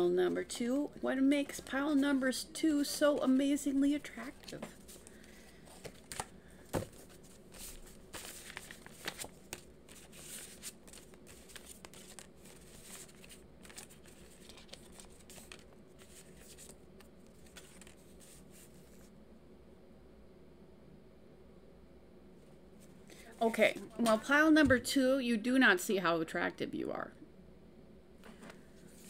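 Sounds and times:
cards shuffling: 0:01.4 - 0:19.1.

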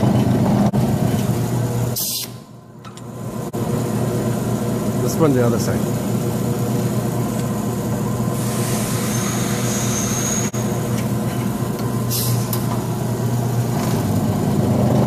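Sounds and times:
machine humming: 0:00.0 - 0:15.0
air hissing: 0:01.9 - 0:02.5, 0:08.3 - 0:10.6, 0:12.1 - 0:12.6.

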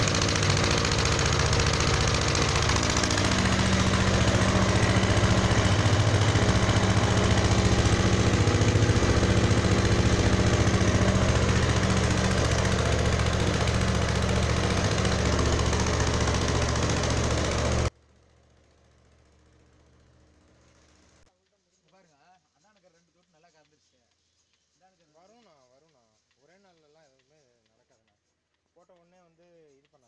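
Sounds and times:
small petrol engine running: 0:00.0 - 0:21.2.

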